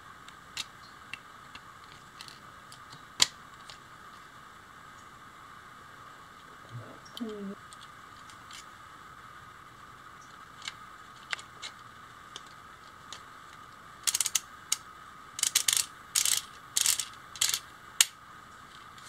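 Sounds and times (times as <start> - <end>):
plastic parts handled: 0.5 - 3.8
ratchet clicking rattles: 14.0 - 14.8, 15.4 - 18.2.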